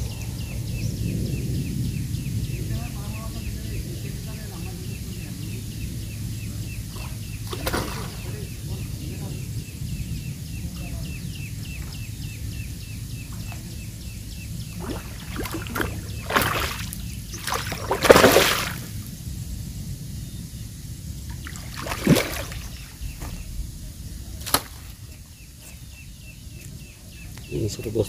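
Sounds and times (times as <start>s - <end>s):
fish thrashing water splashing: 6.9s - 8.5s, 14.7s - 19.0s, 21.3s - 22.9s, 24.4s - 25.0s.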